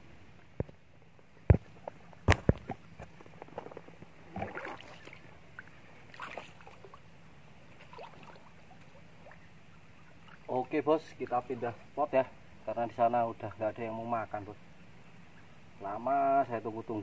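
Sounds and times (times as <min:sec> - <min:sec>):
water sloshing: 0:01.8 - 0:07.1, 0:07.7 - 0:11.8.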